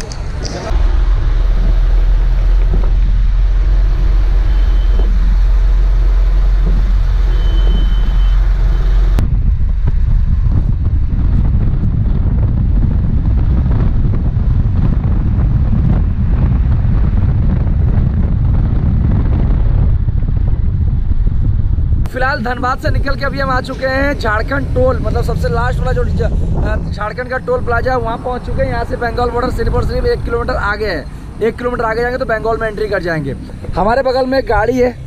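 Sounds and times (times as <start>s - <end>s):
truck engine hum inside cab: 0.0s - 22.1s.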